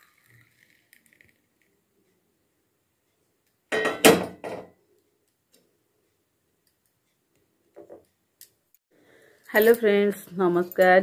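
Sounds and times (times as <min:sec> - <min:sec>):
tea pouring into cup: 0:00.0 - 0:01.4.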